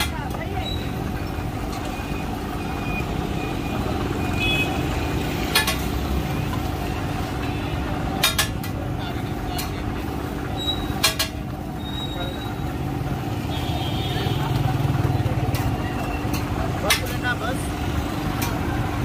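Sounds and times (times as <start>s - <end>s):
street traffic rumble: 0.0s - 19.0s
metal spatula striking griddle: 5.5s - 5.9s, 8.2s - 8.8s.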